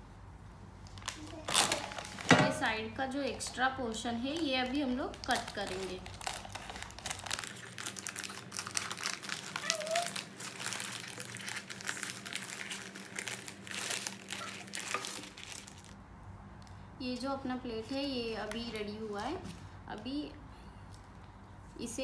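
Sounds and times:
paper crinkling and rustling: 0:00.8 - 0:02.4, 0:04.3 - 0:16.0.

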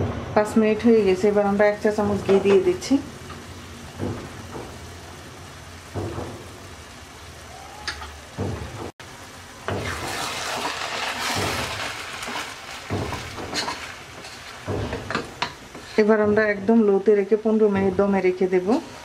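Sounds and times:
rice sizzling in a pot: 0:00.4 - 0:19.0
spatula stirring rice: 0:09.7 - 0:16.3.

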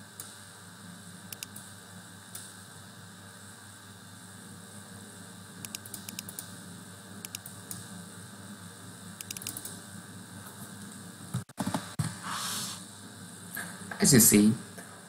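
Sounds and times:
keyboard and mouse clicks: 0:05.6 - 0:06.5, 0:07.2 - 0:07.8, 0:09.2 - 0:09.7.

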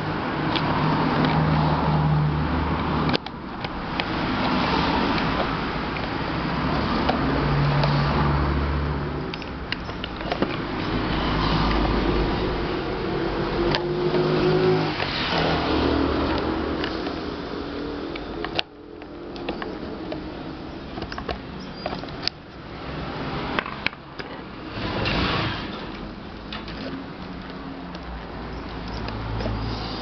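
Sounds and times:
road traffic passing: 0:00.0 - 0:30.0
plastic clicks: 0:02.8 - 0:08.0, 0:18.1 - 0:22.6.

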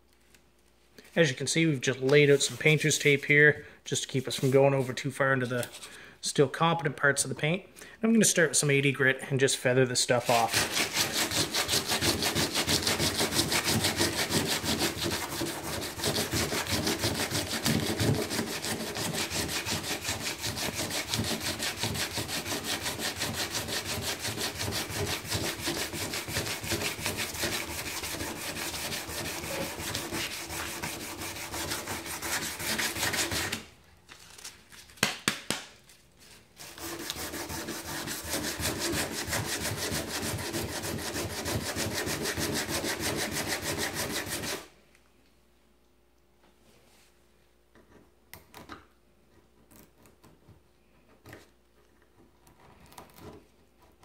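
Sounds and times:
sandpaper scraping paint: 0:02.2 - 0:03.1, 0:04.2 - 0:05.1, 0:10.2 - 0:33.7, 0:36.6 - 0:44.7.

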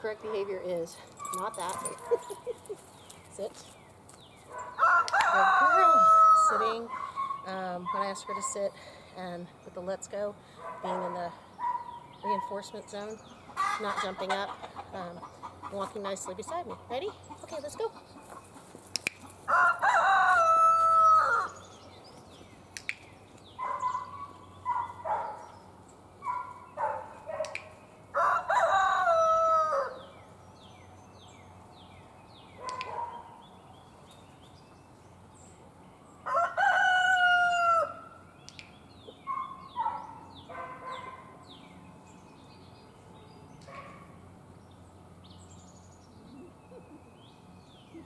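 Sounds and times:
rooster crowing: 0:04.7 - 0:06.8, 0:19.5 - 0:21.6, 0:28.1 - 0:30.2, 0:36.2 - 0:38.1
chickens clucking: 0:13.3 - 0:19.4.

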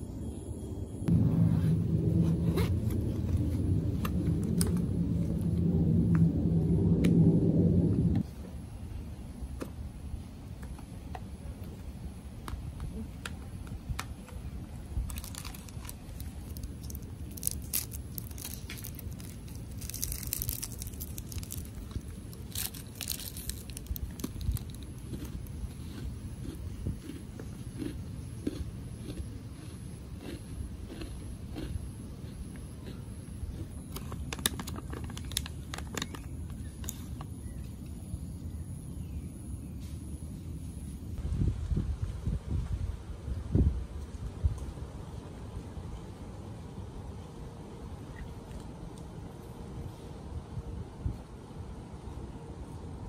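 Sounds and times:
low rumble: 0:00.0 - 0:08.3, 0:14.8 - 0:27.0
steady low rumble: 0:00.0 - 0:53.0
plastic wrapper crinkling and tearing: 0:15.0 - 0:25.5, 0:34.3 - 0:36.3
biscuit crunching: 0:15.0 - 0:31.8.

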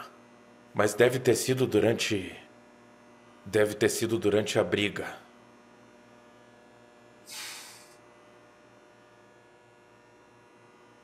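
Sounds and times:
steady low hum: 0:00.0 - 0:11.0
brief hiss: 0:07.3 - 0:08.0.

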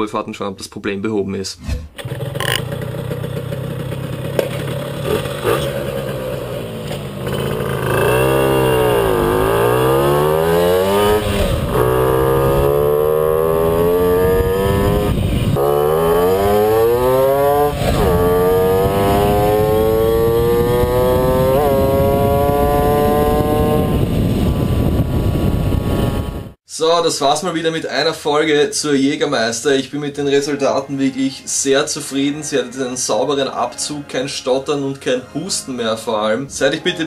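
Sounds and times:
moped two-stroke engine accelerating: 0:02.0 - 0:26.6.

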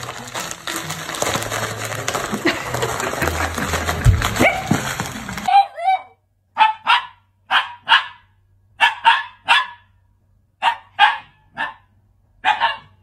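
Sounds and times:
dog barking: 0:05.5 - 0:10.0, 0:10.6 - 0:13.0.

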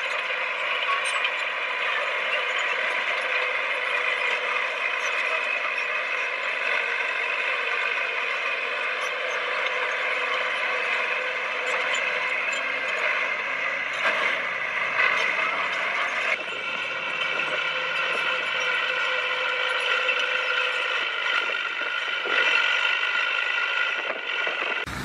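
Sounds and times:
squeal and clatter of steel tracks: 0:00.0 - 0:25.0
bulldozer engine running: 0:09.8 - 0:17.1.

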